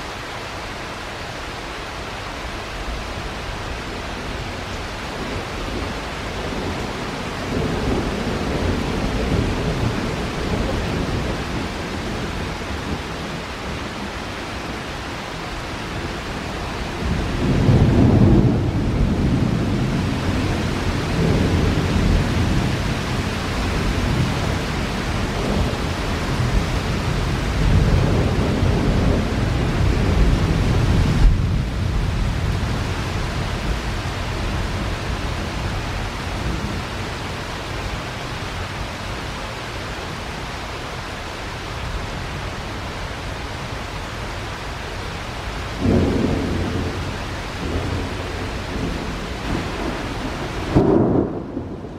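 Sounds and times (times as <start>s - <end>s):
heavy rain: 0.0s - 51.9s
thunder rolling: 45.8s - 51.9s.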